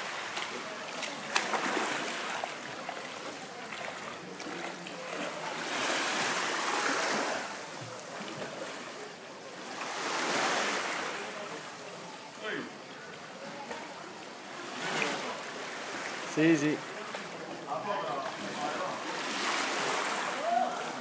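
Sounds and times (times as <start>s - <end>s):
small waves washing over pebbles: 0.0s - 11.5s, 18.2s - 21.0s.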